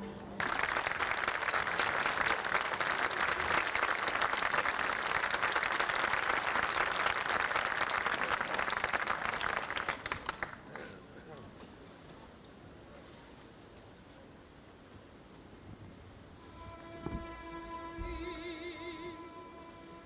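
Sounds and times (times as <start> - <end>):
audience applauding: 0.4 - 10.9.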